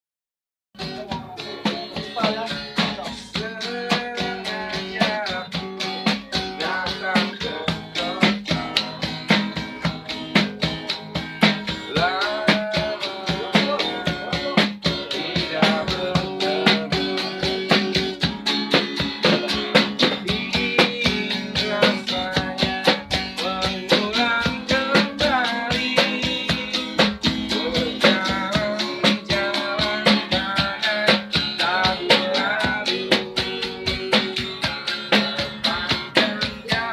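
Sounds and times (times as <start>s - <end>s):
man singing: 0.8s - 18.3s, 19.2s - 36.9s
acoustic guitar strumming: 0.8s - 36.9s.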